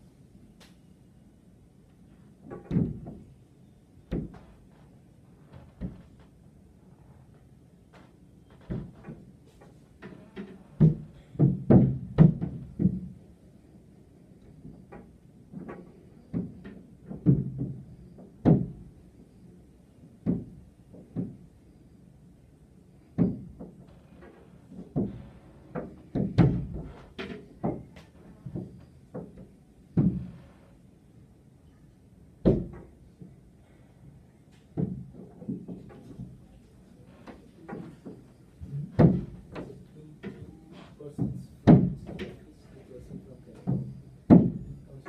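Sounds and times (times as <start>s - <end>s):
dull knocks on glass window: 10.8s - 13.2s, 16.3s - 17.8s, 18.4s - 18.8s, 20.2s - 21.4s, 24.9s - 27.0s, 30.0s - 30.3s, 32.4s - 32.9s, 38.9s - 39.7s, 41.2s - 42.4s, 43.7s - 44.6s.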